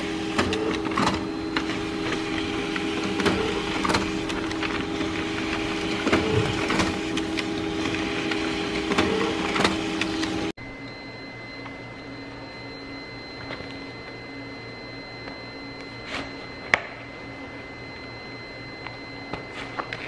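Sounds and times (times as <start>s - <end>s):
printer sharp clicks: 0.0s - 10.4s
printer mechanical hum: 0.0s - 20.0s.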